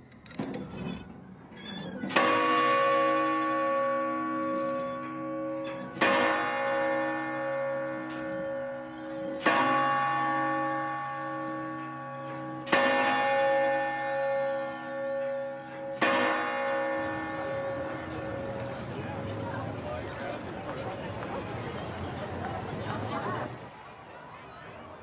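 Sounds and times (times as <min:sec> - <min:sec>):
large bell tolling: 0:02.1 - 0:20.9.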